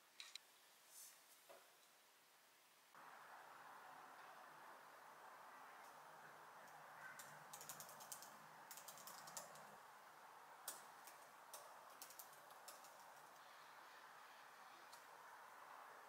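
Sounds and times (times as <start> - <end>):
low room noise: 0.0 - 16.0
typing on laptop keyboard: 7.1 - 9.8, 10.6 - 13.4.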